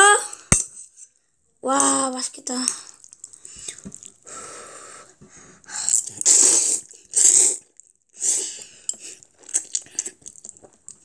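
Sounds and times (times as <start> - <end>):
breathy mouth sounds: 2.6 - 11.0.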